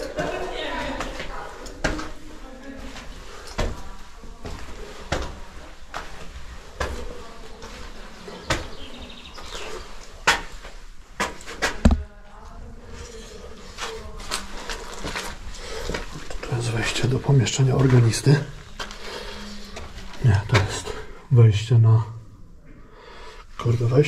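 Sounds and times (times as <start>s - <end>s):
footsteps on gritty concrete stairs: 2.8s - 12.1s.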